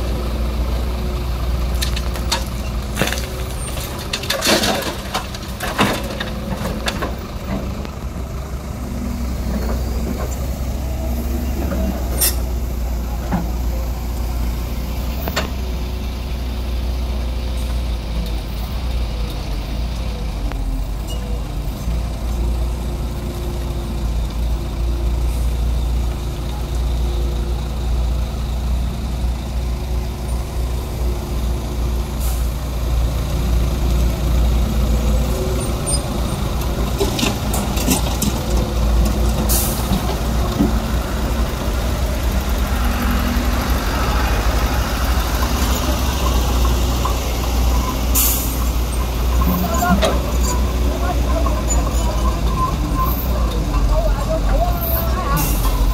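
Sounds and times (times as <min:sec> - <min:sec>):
diesel engines rumbling: 0:00.0 - 0:55.9
excavator bucket knocking and scraping: 0:01.8 - 0:08.0, 0:36.1 - 0:41.2, 0:48.8 - 0:55.9.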